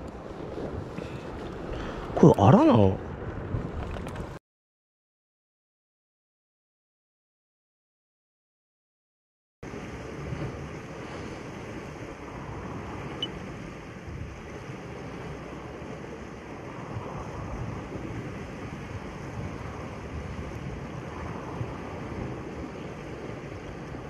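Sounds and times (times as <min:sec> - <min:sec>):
wind on microphone: 0:03.0 - 0:04.4, 0:09.7 - 0:24.0
waves washing on rocky shore: 0:09.7 - 0:24.0.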